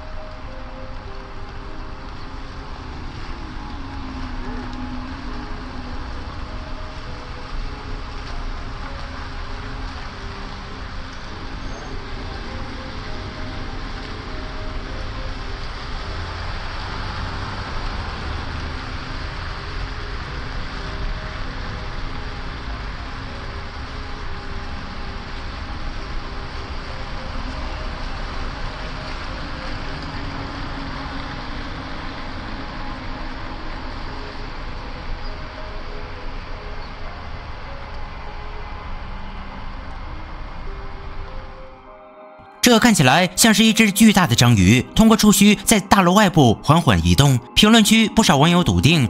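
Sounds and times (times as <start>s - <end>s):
distant road traffic rumble: 0.0s - 24.0s.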